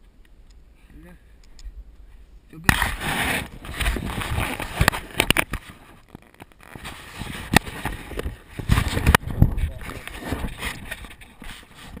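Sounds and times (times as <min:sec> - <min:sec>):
rubbing and scuffing on camera: 0:02.8 - 0:12.0.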